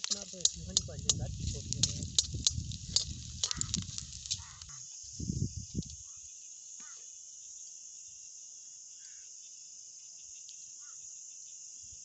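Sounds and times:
crickets chirping in grass: 0:00.0 - 0:12.0
low rumble: 0:00.4 - 0:04.4.

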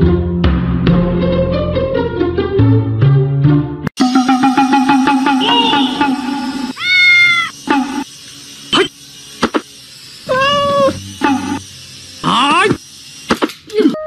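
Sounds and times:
cat meowing: 0:06.7 - 0:07.6, 0:10.3 - 0:11.0.

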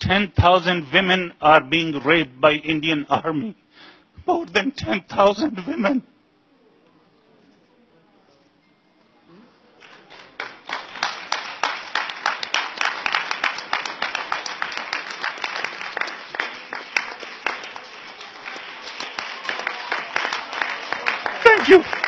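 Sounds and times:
audience applauding: 0:09.8 - 0:22.0.

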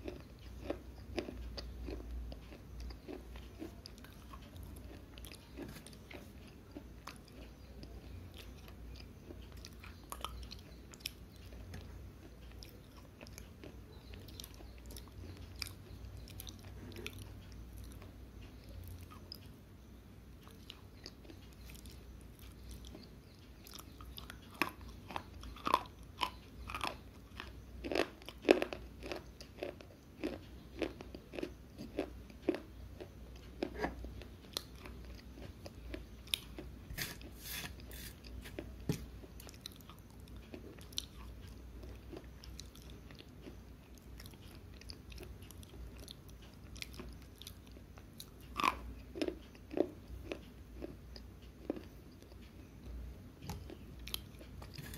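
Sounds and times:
slate pencil crunching when chewed: 0:23.8 - 0:38.7.

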